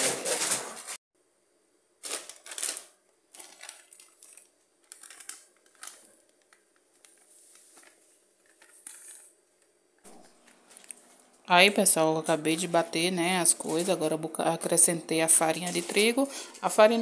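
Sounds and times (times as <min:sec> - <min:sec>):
plastic bag crinkling: 0:02.0 - 0:09.4, 0:12.0 - 0:14.2, 0:15.2 - 0:17.0.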